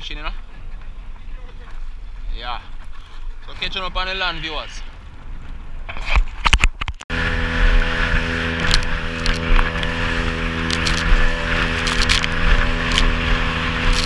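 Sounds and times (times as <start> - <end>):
outboard motor running: 7.1 - 14.0.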